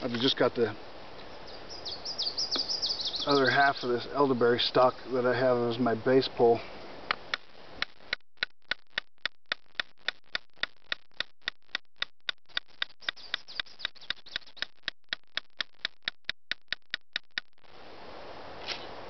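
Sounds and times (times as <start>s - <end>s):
stick tapping knife spine: 7.1s - 17.5s.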